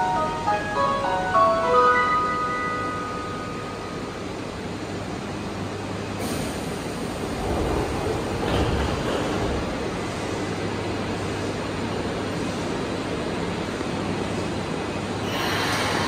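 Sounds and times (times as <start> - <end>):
chime melody: 0.0 - 4.1
subway train rumble: 0.0 - 16.0.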